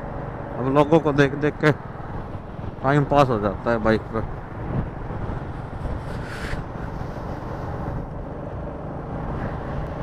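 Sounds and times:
motorcycle engine rumble: 0.0s - 10.0s
wind on microphone: 4.2s - 10.0s
brief hiss: 6.1s - 7.1s.

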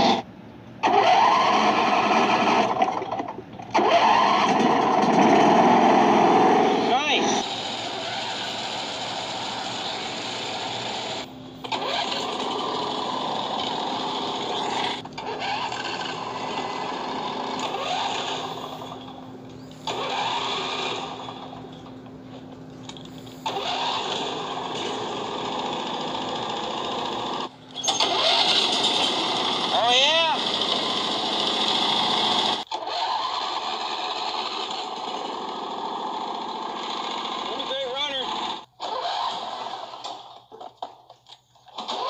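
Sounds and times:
small engine cranking and running: 0.8s - 42.0s.

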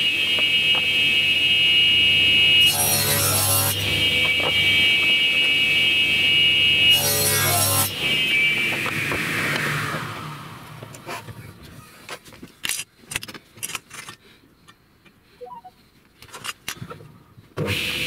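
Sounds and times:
table saw whine: 0.0s - 10.8s.

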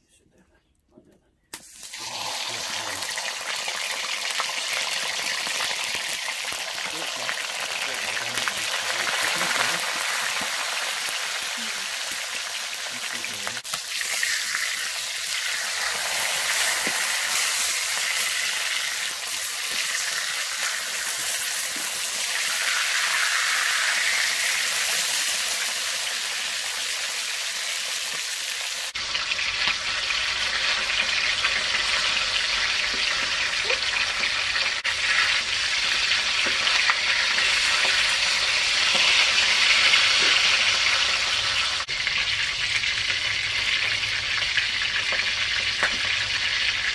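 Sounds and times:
fish sizzling in hot oil: 1.6s - 46.9s.

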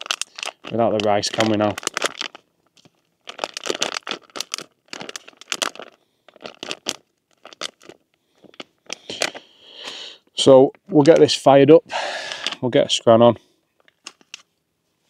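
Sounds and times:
plastic packaging rustling: 0.0s - 9.6s, 13.8s - 14.5s.

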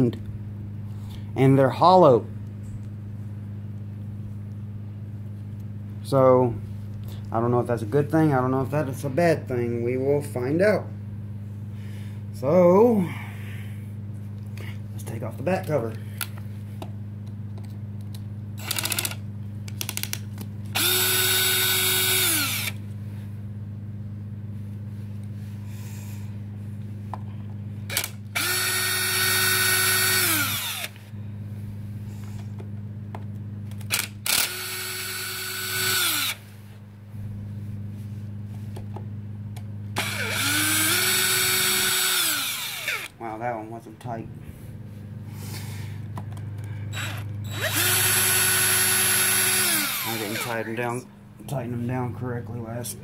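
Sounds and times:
steady low hum: 0.0s - 53.0s
electric driver whining: 18.6s - 22.9s, 27.8s - 31.1s, 33.7s - 36.5s, 39.9s - 43.2s, 45.4s - 51.0s.

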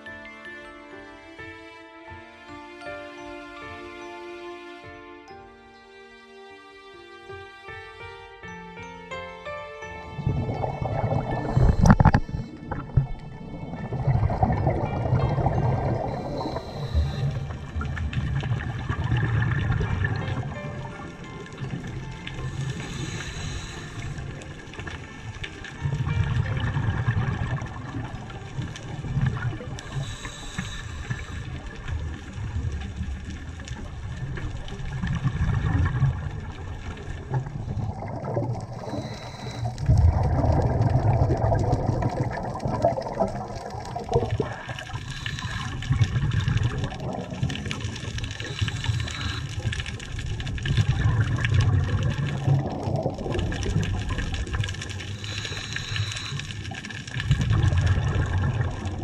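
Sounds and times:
underwater rumble: 10.1s - 59.0s
gurgling bubble bursts: 10.2s - 21.3s, 25.8s - 30.2s, 31.9s - 59.0s.

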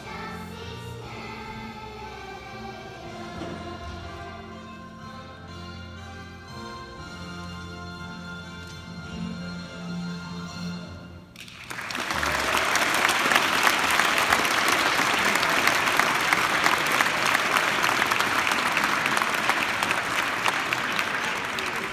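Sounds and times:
held music chord: 0.0s - 11.3s
audience applause: 11.4s - 21.9s.

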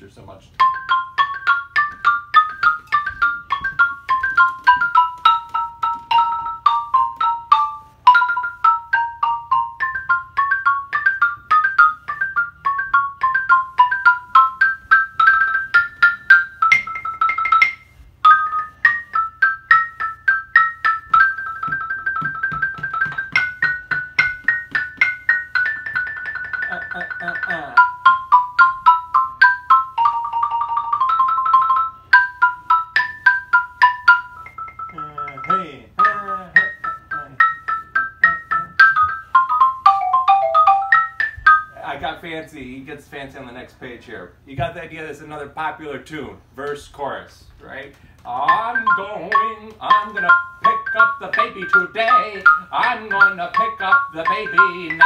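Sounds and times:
xylophone ragtime melody: 0.5s - 42.6s, 47.9s - 55.0s.

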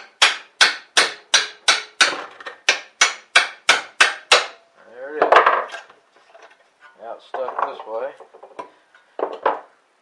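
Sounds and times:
hammer striking chisel: 0.0s - 4.6s.

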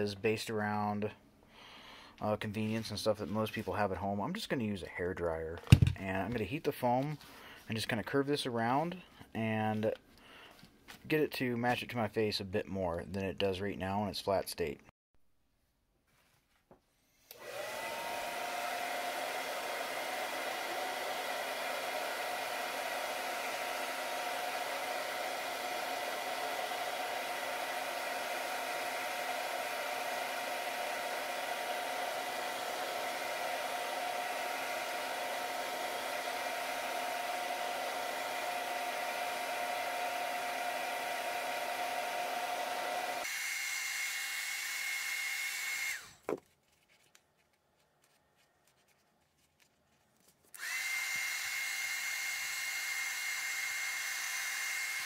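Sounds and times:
hair dryer blowing: 17.2s - 46.3s, 50.5s - 55.0s.

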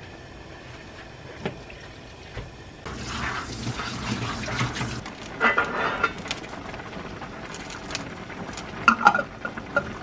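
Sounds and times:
chicken boiling in pan: 2.8s - 10.0s.

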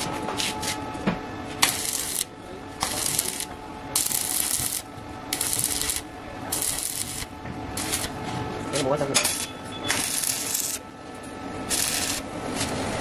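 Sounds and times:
welding arc crackling and hissing: 1.6s - 8.2s, 8.8s - 10.8s, 11.6s - 12.8s.

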